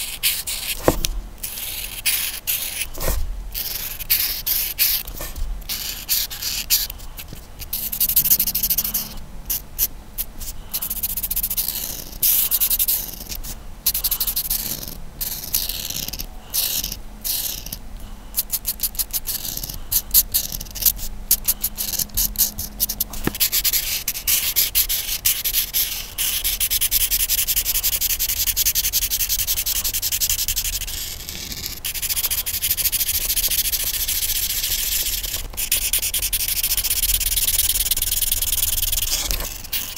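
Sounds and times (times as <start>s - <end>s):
colouring tool rubbing on paper: 0.0s - 39.9s.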